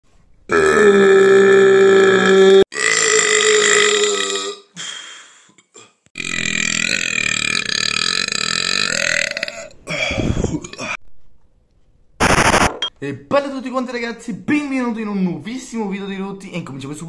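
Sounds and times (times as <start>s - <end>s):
man burping: 0.5s - 4.8s, 5.7s - 11.0s.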